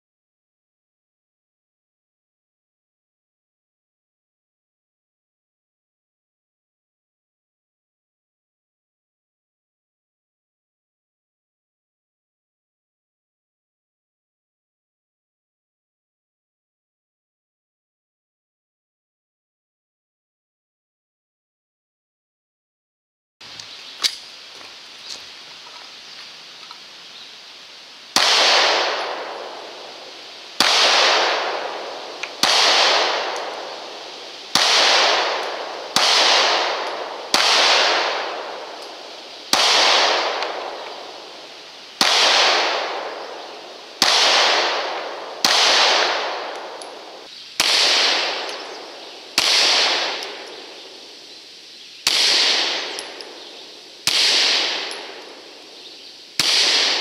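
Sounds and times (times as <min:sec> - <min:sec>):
pistol shots echoing: 0:28.1 - 0:51.2, 0:52.0 - 0:57.0.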